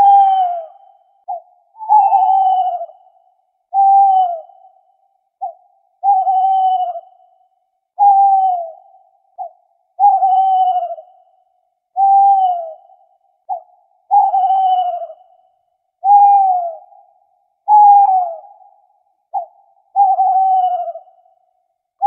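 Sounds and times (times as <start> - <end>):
owl hooting: 0.0 - 21.7.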